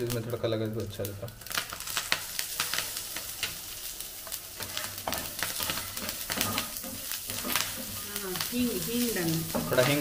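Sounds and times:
spices sizzling in hot oil: 0.0s - 10.0s
metal spatula stirring: 4.2s - 10.0s.

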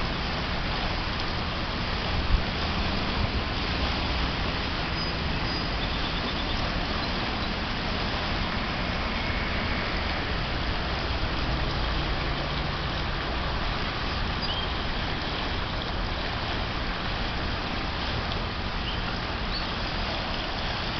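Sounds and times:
creek water rushing: 0.0s - 20.9s.

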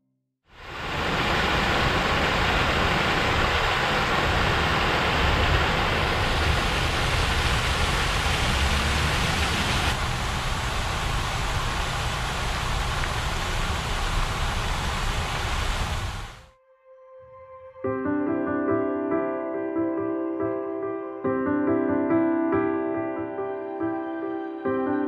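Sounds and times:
fountain water splashing: 0.5s - 16.5s.

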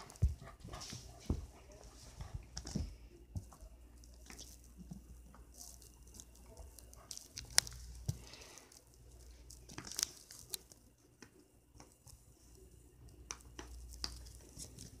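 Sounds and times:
puppy chewing and gnawing: 4.0s - 10.8s.

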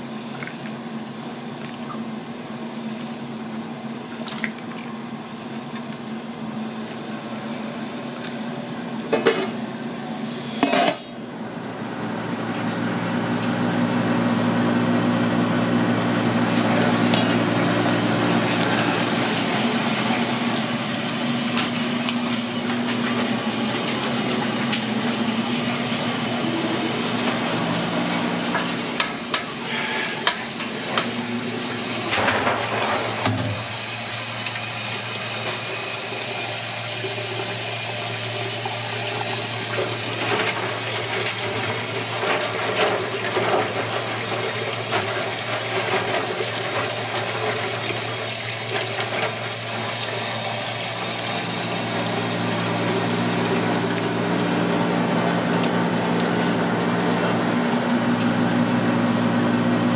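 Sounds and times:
pot boiling: 15.8s - 59.9s
tap water running into sink: 16.1s - 55.8s.

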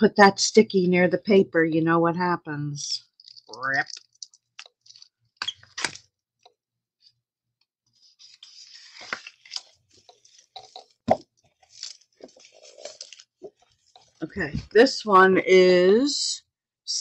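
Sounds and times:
cellophane crinkling and crackling: 3.1s - 6.5s, 8.0s - 14.2s.

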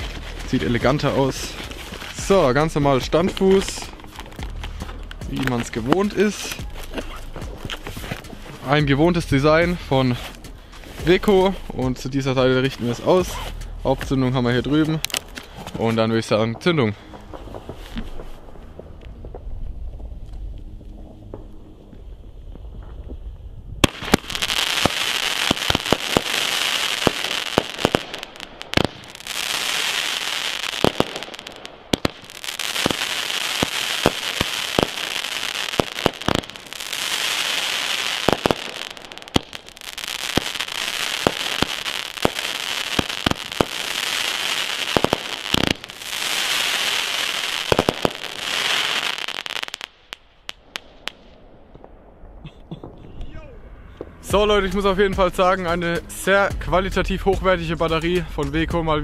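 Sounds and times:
firework crackling: 0.0s - 13.8s, 14.4s - 16.1s, 17.0s - 53.0s
firework launch bangs: 23.8s - 49.9s.

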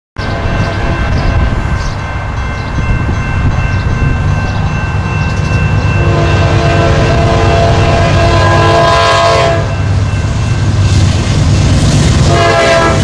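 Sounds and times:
locomotive horn: 0.2s - 1.0s, 6.0s - 9.9s, 12.1s - 13.0s
freight train rumble: 0.2s - 13.0s.

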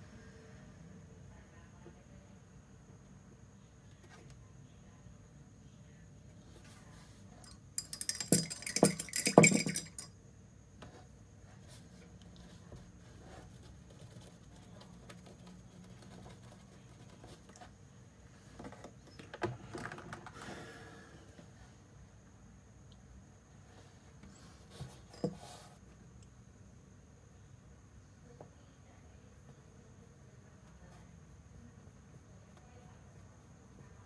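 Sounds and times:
paint pots clinking on wooden table: 7.4s - 10.1s.

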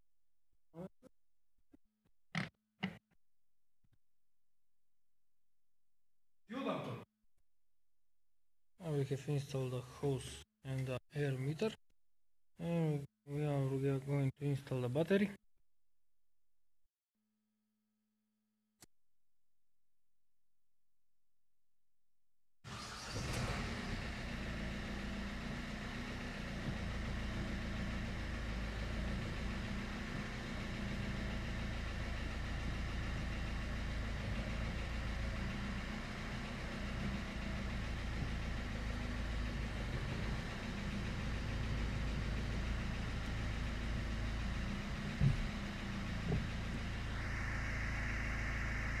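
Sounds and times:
diesel engine starting and idling: 22.7s - 49.0s
high whir: 44.5s - 49.0s.

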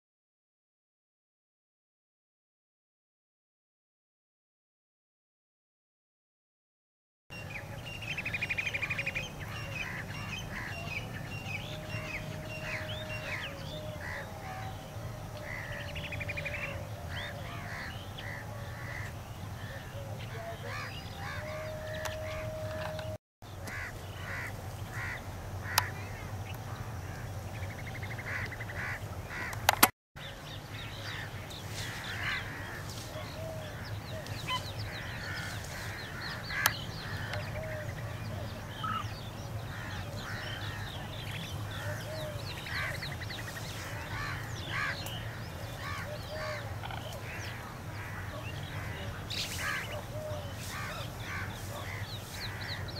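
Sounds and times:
birds chirping and trilling: 7.3s - 52.9s
crow-like caws: 23.7s - 26.1s, 44.1s - 45.0s
sharp clicks: 29.5s - 29.9s.

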